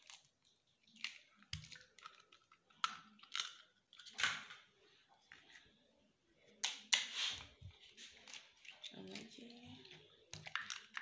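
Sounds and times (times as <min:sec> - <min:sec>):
eggshells cracking: 0:00.0 - 0:04.5, 0:10.3 - 0:11.0.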